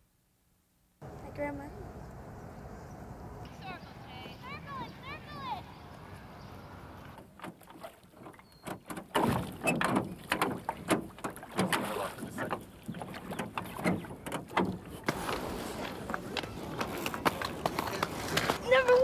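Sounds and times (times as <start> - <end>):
oars knocking and splashing: 7.0 - 19.0.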